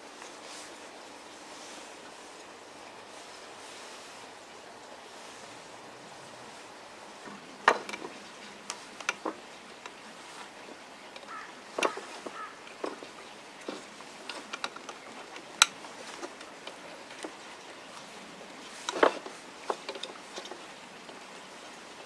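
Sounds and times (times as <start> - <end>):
faint outdoor hiss: 0.0 - 22.0
wooden clicks and knocks: 7.2 - 18.0, 18.7 - 21.2.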